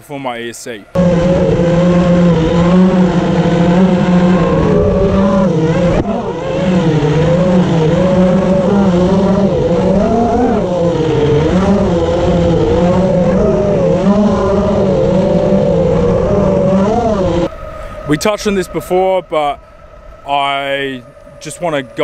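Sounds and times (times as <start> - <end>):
electric skateboard motors whining: 0.9 - 22.0
wheels rolling on asphalt: 1.0 - 17.9.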